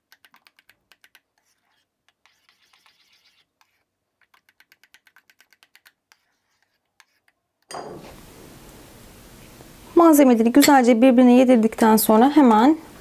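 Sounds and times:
spoon stirring in ceramic bowl: 0.1 - 8.2
steady hiss: 8.0 - 10.0.

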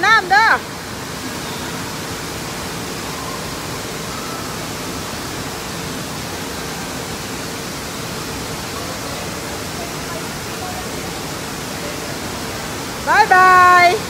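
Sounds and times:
rush of churning water: 0.0 - 14.0.

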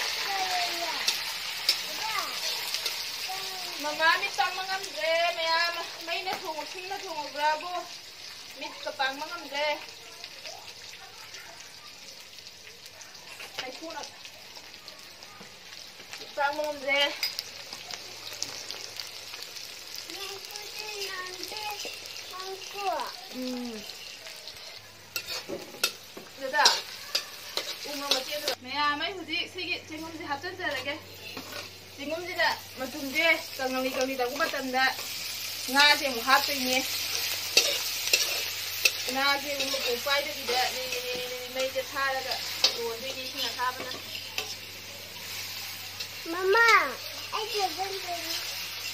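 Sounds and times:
vegetables sizzling in hot oil: 0.0 - 48.9
metal spatula scraping pan: 23.9 - 28.6, 31.2 - 31.8, 33.9 - 46.2.

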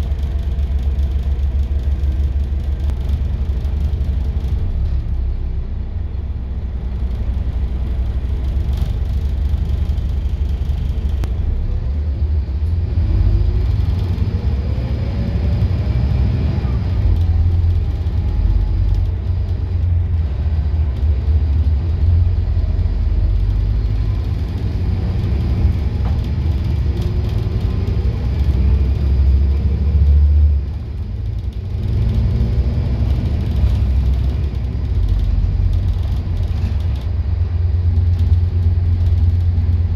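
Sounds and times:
diesel bus engine rumble: 0.0 - 39.9
road noise: 0.0 - 39.9.

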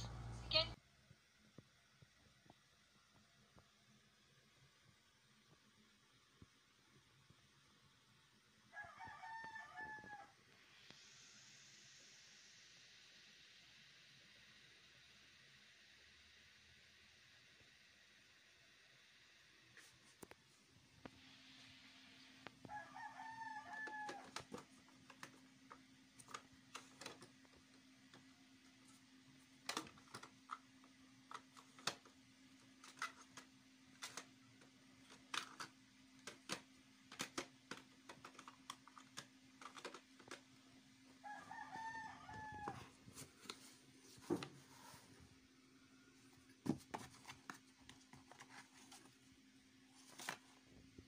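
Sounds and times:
low steady hum: 0.0 - 8.3
rooster crowing: 8.7 - 10.4, 22.7 - 24.5, 41.2 - 43.0.

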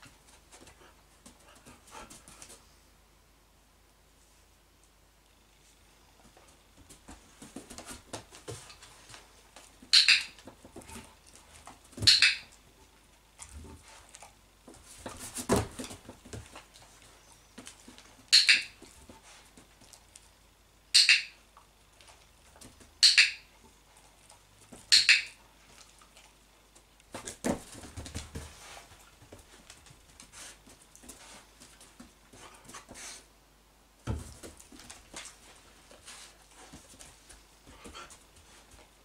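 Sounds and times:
soft knocks and shuffling: 5.6 - 20.0, 26.7 - 33.1, 34.0 - 39.0
training clicker clicks: 9.9 - 10.4, 18.3 - 18.7.

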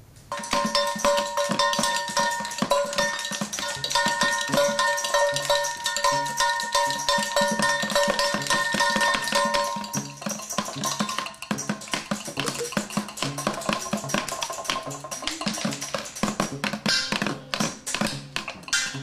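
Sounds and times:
ringing tones: 0.3 - 17.9
quick tapping strikes: 0.3 - 19.0.

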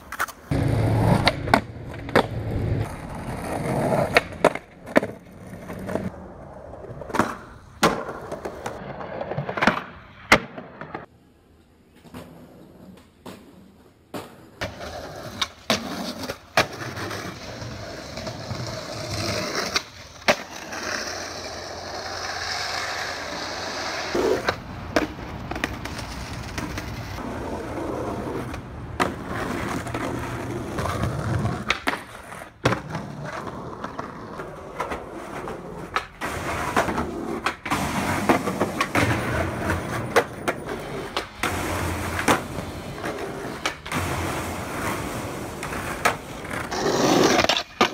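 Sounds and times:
skateboard wheels rolling on pavement: 0.0 - 47.9
skateboard pops and slaps: 3.6 - 6.1, 7.0 - 11.1, 12.0 - 17.3, 19.1 - 20.8, 28.4 - 47.9.

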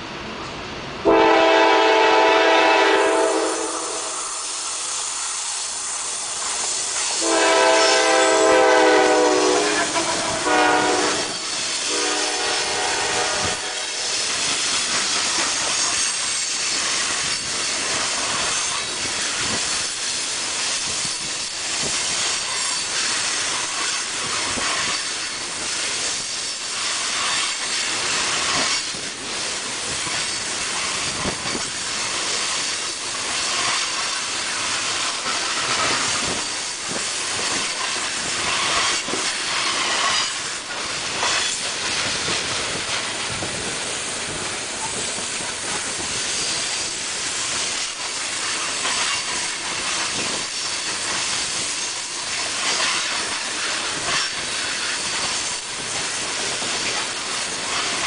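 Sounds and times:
steel wheels rushing on rail: 0.0 - 58.0.

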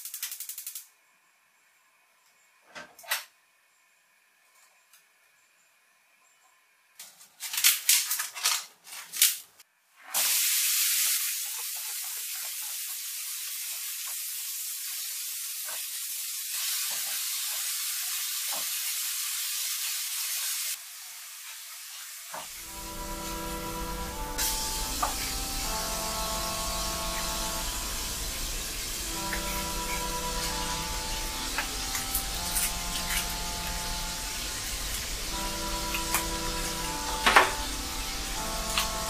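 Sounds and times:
meat sizzling in pan: 10.2 - 22.6
music: 22.6 - 39.0.

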